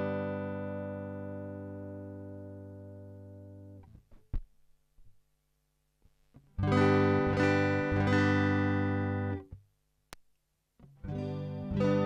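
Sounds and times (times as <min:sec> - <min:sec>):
guitar chord strummed: 0:00.0 - 0:03.8, 0:06.6 - 0:09.5, 0:10.8 - 0:12.0
small click: 0:10.1 - 0:10.4.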